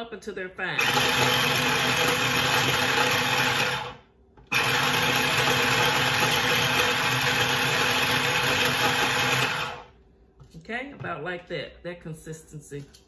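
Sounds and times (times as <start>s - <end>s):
electric food chopper whirring: 0.8s - 9.9s.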